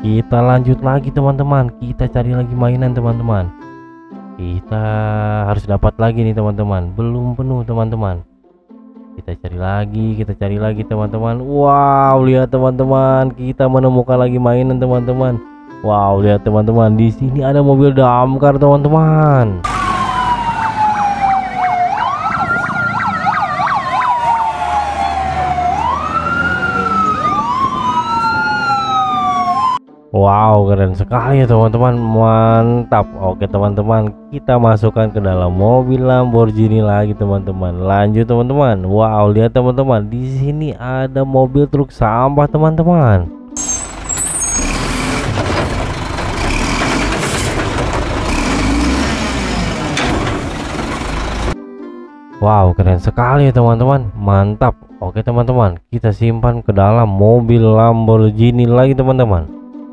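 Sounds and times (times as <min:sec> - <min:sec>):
garbage truck engine rumble: 0:19.6 - 0:29.8, 0:43.6 - 0:51.6
wailing sirens: 0:19.6 - 0:29.8
yelping siren: 0:19.6 - 0:29.8
hydraulic arm lifting bin: 0:43.6 - 0:51.6.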